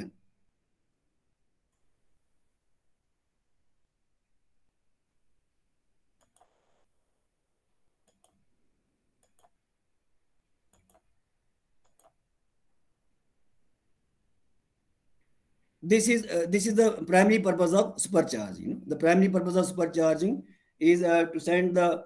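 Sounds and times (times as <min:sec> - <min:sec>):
faint computer mouse clicks: 0:06.2 - 0:06.6, 0:08.0 - 0:08.4, 0:09.2 - 0:09.6, 0:10.7 - 0:11.2, 0:11.8 - 0:12.2.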